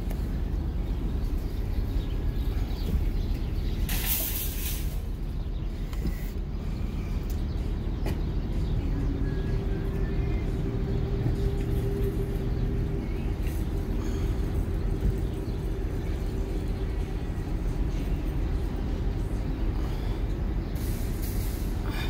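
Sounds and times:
low rumble of vehicles: 0:00.0 - 0:22.0
loud hiss: 0:20.8 - 0:21.8.

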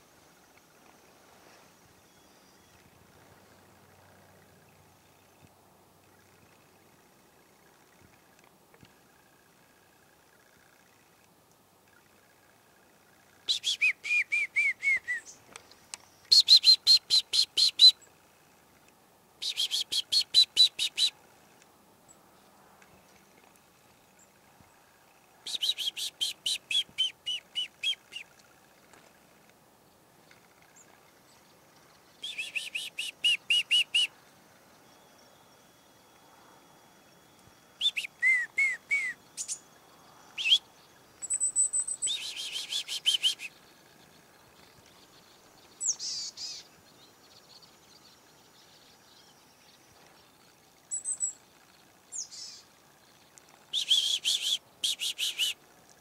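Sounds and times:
chickadees calling: 0:40.3 - 0:44.1, 0:45.3 - 0:46.7, 0:53.7 - 0:55.6.

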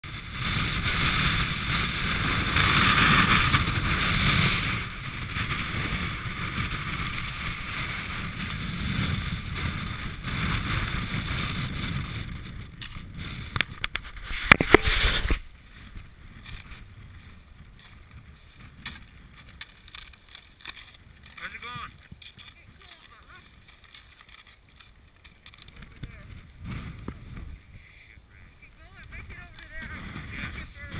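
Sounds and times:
gusty wind buffeting microphone: 0:00.0 - 0:30.9.

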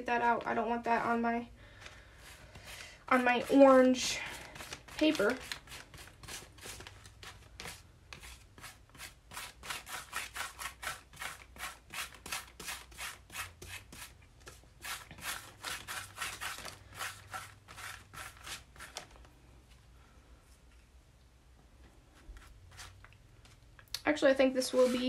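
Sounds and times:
paintbrush scrubbing on paper: 0:07.6 - 0:14.2, 0:14.8 - 0:19.0, 0:22.2 - 0:23.0, 0:24.6 - 0:25.0.

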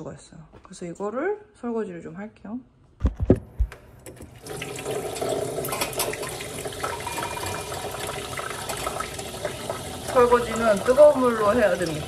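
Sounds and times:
dishes clinking: 0:05.2 - 0:09.6.

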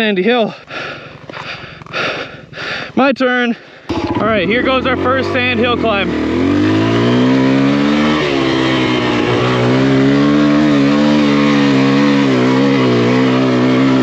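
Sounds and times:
dirt bike engine revving: 0:03.9 - 0:14.0.

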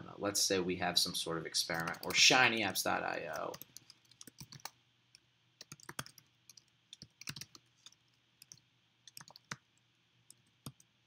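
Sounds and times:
computer keyboard typing: 0:01.7 - 0:02.3, 0:03.3 - 0:04.7, 0:05.6 - 0:09.7.

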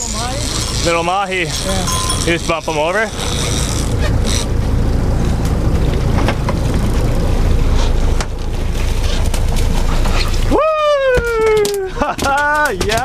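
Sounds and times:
boat engine running: 0:00.0 - 0:13.0
water splashes: 0:00.0 - 0:13.0
wind rumbling on microphone: 0:01.8 - 0:11.6.

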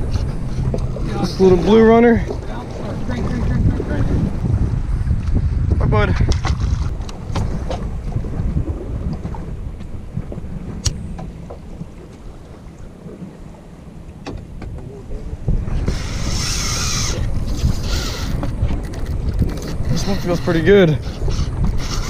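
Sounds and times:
steady low rumble: 0:00.0 - 0:20.3
wind buffeting microphone: 0:00.0 - 0:22.0.

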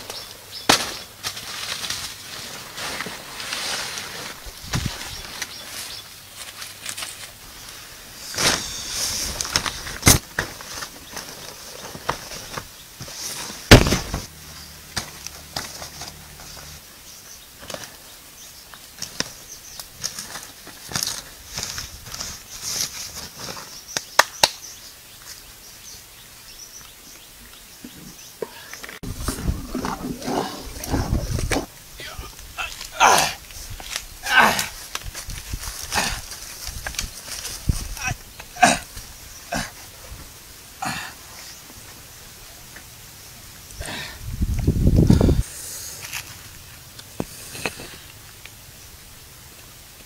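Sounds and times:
banana leaves rustling: 0:00.0 - 0:16.8, 0:18.7 - 0:24.3, 0:29.0 - 0:42.8, 0:44.7 - 0:49.1
sharp cracks and knocks: 0:00.1 - 0:02.2, 0:13.6 - 0:14.3, 0:23.9 - 0:24.7.

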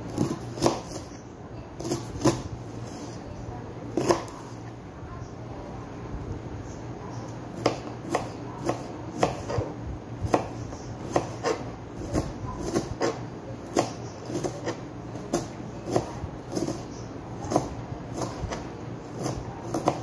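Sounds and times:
knife chopping on cutting board: 0:00.1 - 0:01.1, 0:01.8 - 0:02.5, 0:04.0 - 0:04.4, 0:07.6 - 0:09.7, 0:10.3 - 0:20.0.

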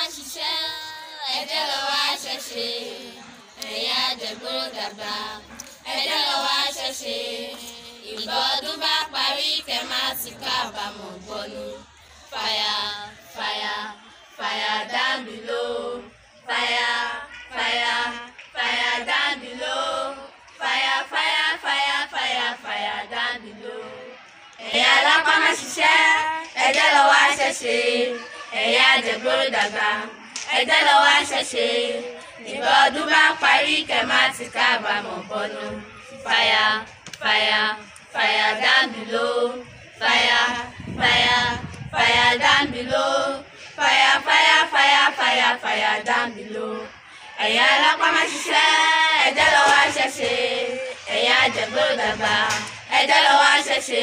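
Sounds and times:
girls singing unaccompanied: 0:00.0 - 0:54.0.

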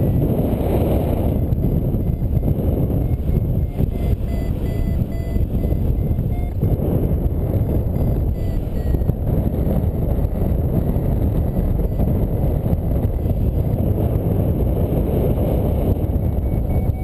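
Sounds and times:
wind rumbling on microphone: 0:00.0 - 0:17.0
faint short beeps: 0:01.5 - 0:06.7, 0:07.6 - 0:09.2, 0:11.0 - 0:12.2, 0:16.2 - 0:17.0.

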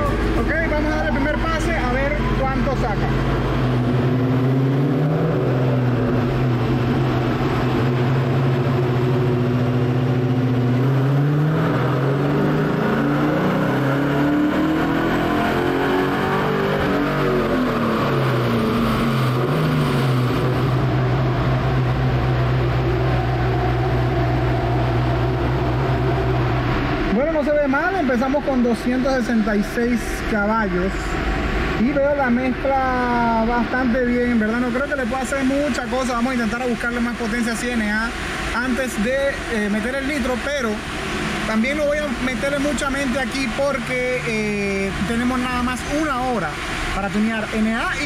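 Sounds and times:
car engine revving on dyno: 0:00.0 - 0:48.0.

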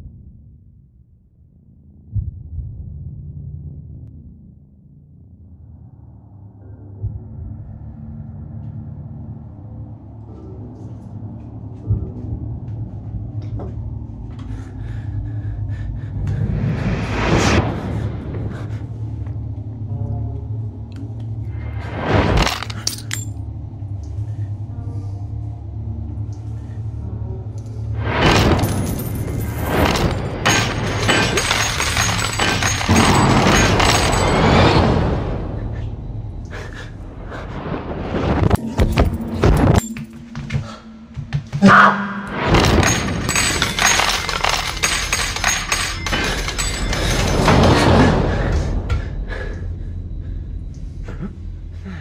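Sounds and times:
low steady rumble: 0:00.0 - 0:52.0
coins clinking and ringing: 0:22.4 - 0:23.3, 0:28.4 - 0:34.4, 0:38.8 - 0:40.6, 0:42.6 - 0:47.7.

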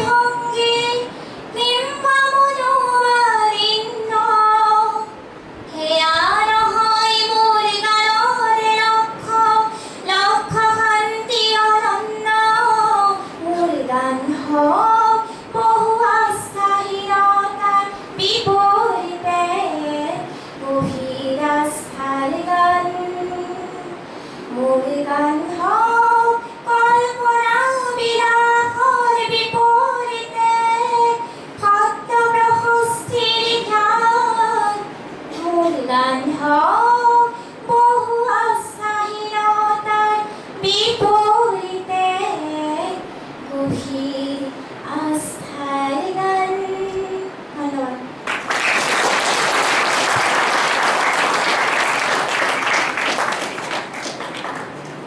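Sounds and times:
woman singing into a microphone: 0:00.0 - 0:48.2
audience applauding: 0:48.2 - 0:54.8.

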